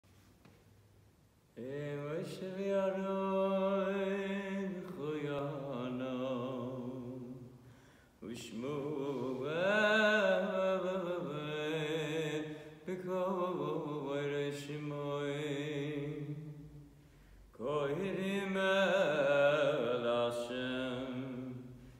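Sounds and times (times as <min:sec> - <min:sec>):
man singing chant solo: 0:17.6 - 0:21.7.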